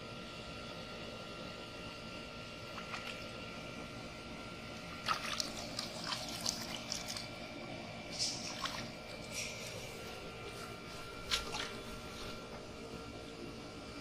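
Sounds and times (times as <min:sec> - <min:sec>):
muddy water splashing: 0:05.0 - 0:07.4, 0:08.1 - 0:10.0, 0:10.6 - 0:12.4.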